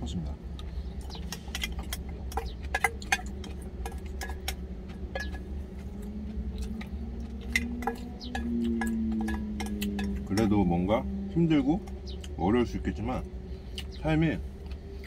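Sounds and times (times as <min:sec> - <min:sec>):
low steady hum: 0:00.0 - 0:15.0
chopsticks clinking on steel bowl: 0:01.0 - 0:05.5, 0:06.6 - 0:10.6.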